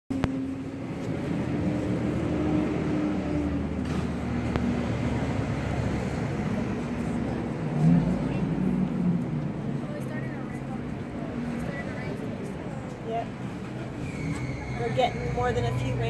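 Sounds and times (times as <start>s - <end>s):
low engine hum: 0.1s - 14.4s.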